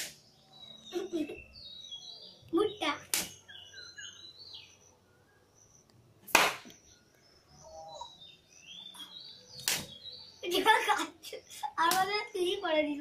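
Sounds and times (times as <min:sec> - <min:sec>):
faint high bird chirps: 0:00.1 - 0:06.0, 0:06.6 - 0:13.0
loud sharp smack: 0:03.1 - 0:03.3, 0:06.3 - 0:06.8, 0:09.6 - 0:09.9.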